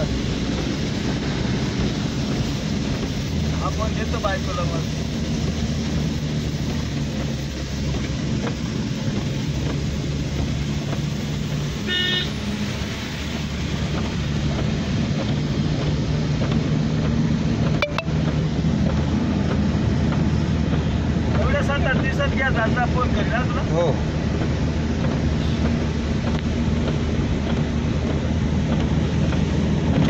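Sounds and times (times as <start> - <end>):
car driving on wet road: 0.0 - 30.0
vehicle horn: 11.9 - 12.4.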